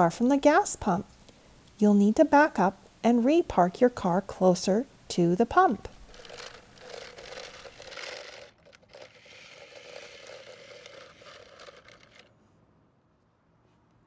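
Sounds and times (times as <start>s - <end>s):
plastic toy wheels rolling on concrete: 5.9s - 12.3s.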